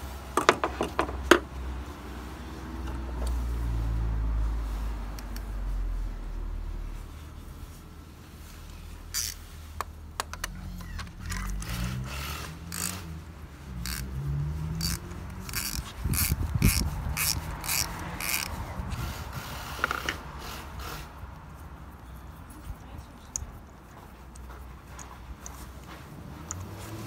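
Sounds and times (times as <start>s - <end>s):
ratchet wrench clicking: 9.1s - 13.1s, 13.8s - 18.6s.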